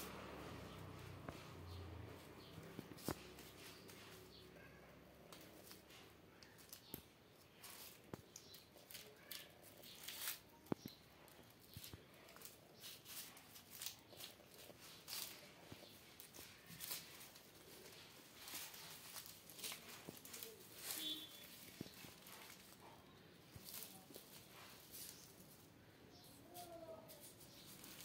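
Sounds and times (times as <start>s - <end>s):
kittens rustling onion skins: 0.0s - 28.0s.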